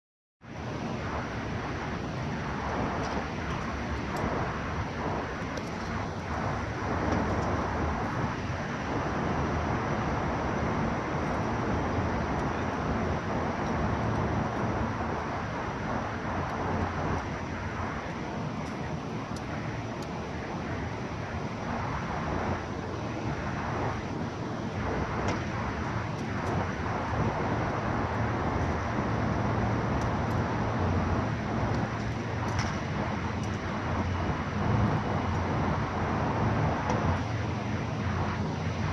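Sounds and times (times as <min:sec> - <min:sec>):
road traffic: 0:00.4 - 0:38.9.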